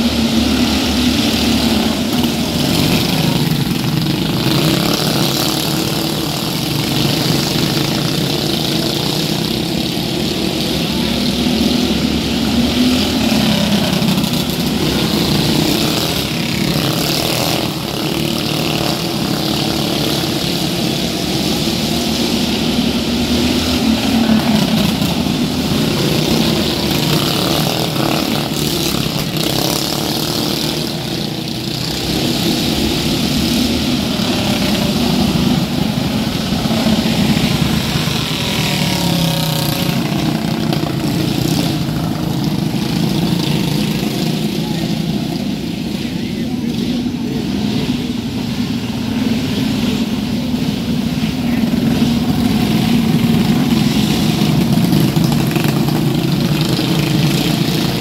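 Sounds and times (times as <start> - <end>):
racing vehicle engines droning: 0.0 - 58.0.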